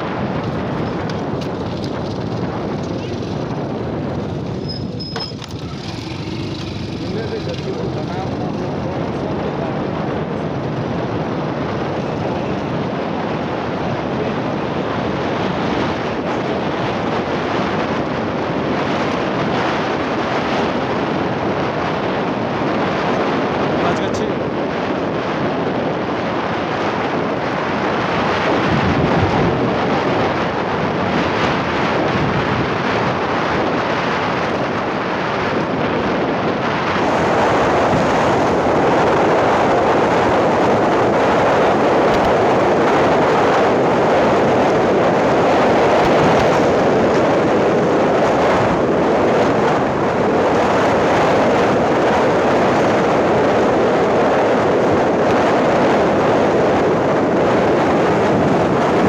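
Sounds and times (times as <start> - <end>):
vehicle tyres on gravel road: 0.0 - 17.6, 27.4 - 52.0
wind on microphone: 0.0 - 59.0.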